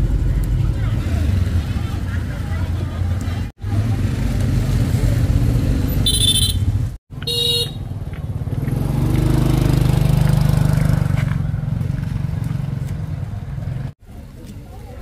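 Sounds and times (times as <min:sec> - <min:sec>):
motorbike engines running: 0:00.0 - 0:15.0
short horn beeps: 0:06.0 - 0:07.8.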